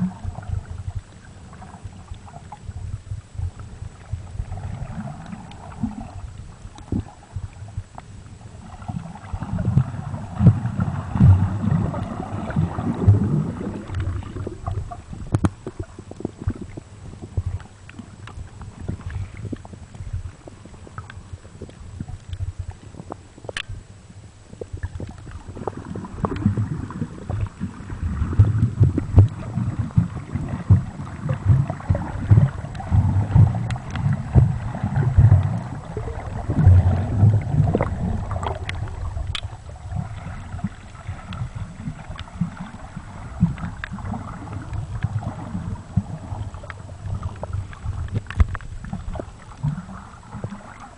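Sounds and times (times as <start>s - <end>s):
water sloshing underwater: 0.0s - 50.9s
small clicks and knocks: 23.1s - 23.7s, 47.4s - 49.7s.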